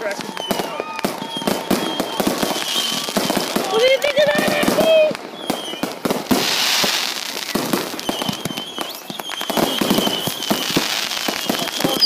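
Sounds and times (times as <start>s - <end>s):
fireworks bursting and crackling: 0.0s - 12.0s
thin high whistle: 0.2s - 3.1s, 8.0s - 12.0s.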